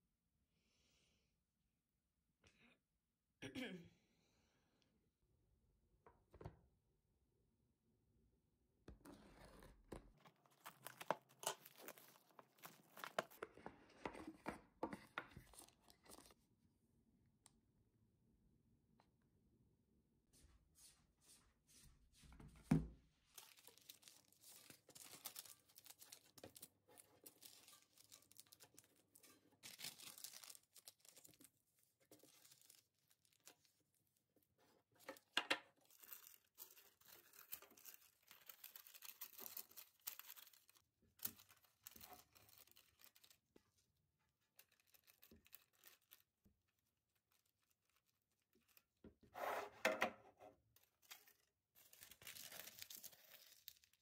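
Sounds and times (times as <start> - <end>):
paper rustling and tearing: 9.1 - 13.4.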